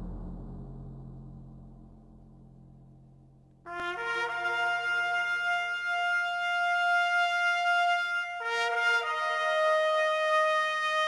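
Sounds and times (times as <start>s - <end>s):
slow music with long held notes: 0.0s - 2.7s.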